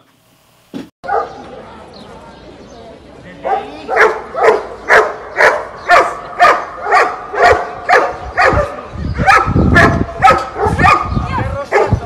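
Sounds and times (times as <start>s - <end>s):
dog barking: 1.0s - 1.4s, 3.4s - 12.0s.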